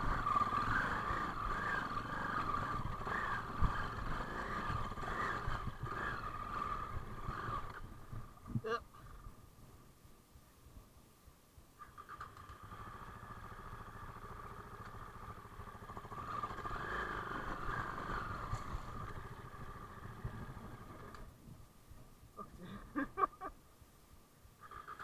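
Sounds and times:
dirt bike engine running: 0:00.0 - 0:08.4, 0:12.5 - 0:21.3.

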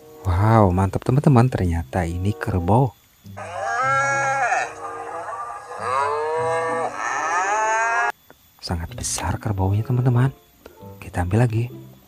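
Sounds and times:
water buffalo mooing: 0:03.4 - 0:08.1.

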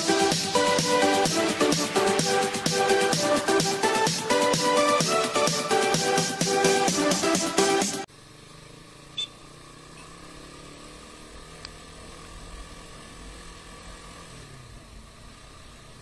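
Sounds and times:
motorcycle engine running: 0:00.0 - 0:16.0
sharp high chirp: 0:09.1 - 0:10.1.

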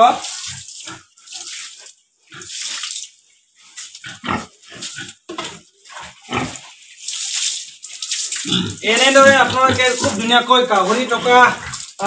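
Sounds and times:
water splashing on concrete: 0:00.0 - 0:03.2, 0:03.8 - 0:12.0
pig grunting: 0:04.0 - 0:05.2, 0:06.1 - 0:06.6, 0:08.4 - 0:11.9.

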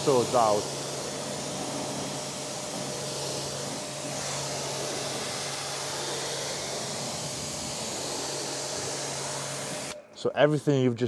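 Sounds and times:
pressure washer spraying water: 0:00.0 - 0:11.0.

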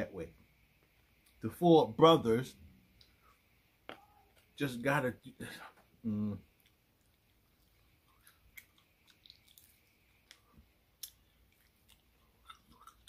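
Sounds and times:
chewing and biting food: 0:06.5 - 0:13.0.

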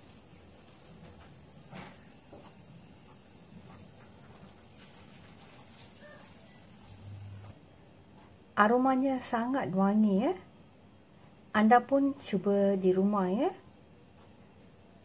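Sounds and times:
faint steady hiss: 0:00.0 - 0:11.4.

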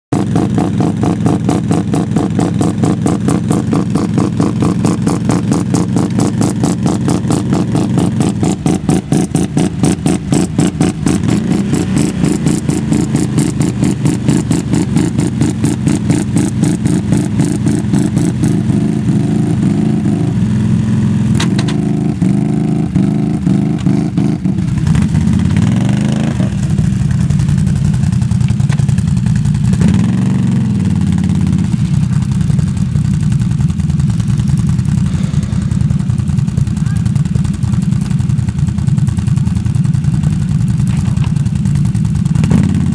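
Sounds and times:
atv engine idling and revving: 0:00.1 - 0:42.9.

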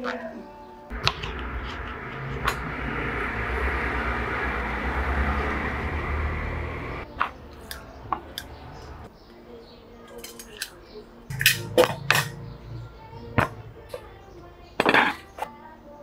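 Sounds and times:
machine rumbling and hissing: 0:00.9 - 0:07.0.

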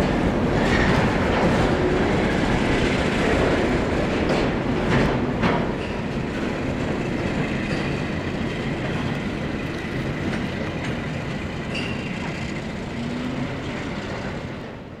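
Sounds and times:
steel wheels clattering on rails: 0:00.0 - 0:15.0
thin wheel squeals: 0:11.7 - 0:13.5.

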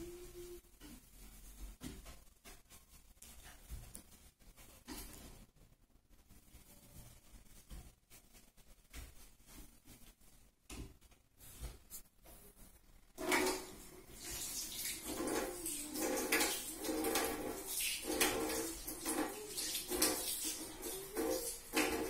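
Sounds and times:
tap water running into sink: 0:13.2 - 0:22.0.

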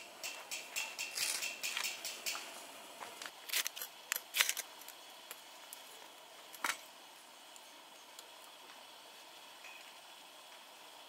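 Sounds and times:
fire-starter rod scraping: 0:00.2 - 0:02.6.

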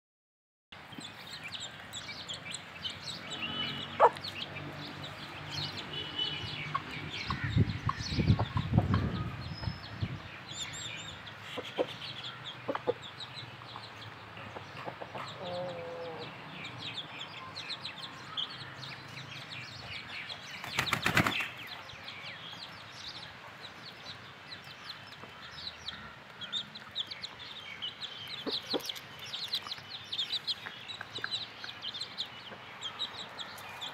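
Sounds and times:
chicks peeping: 0:00.9 - 0:33.9
hens clucking: 0:03.9 - 0:04.4, 0:12.6 - 0:13.1.

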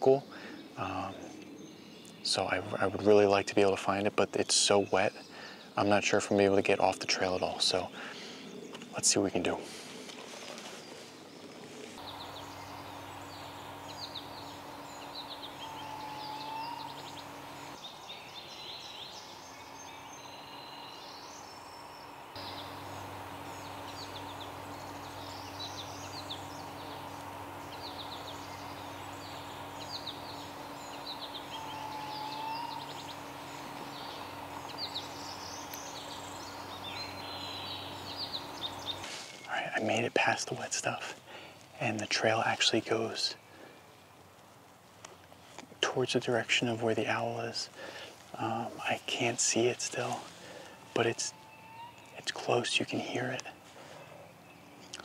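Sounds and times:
songbirds singing: 0:00.0 - 0:55.0
low curved bird call: 0:09.8 - 0:39.5, 0:50.0 - 0:55.0
low steady hum: 0:11.4 - 0:55.0.

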